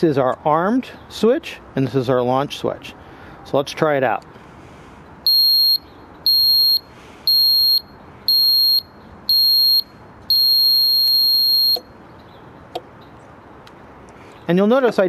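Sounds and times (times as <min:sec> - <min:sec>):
long steady buzzer tone: 0:05.3 - 0:11.9
warning buzzer beeping: 0:05.3 - 0:11.9.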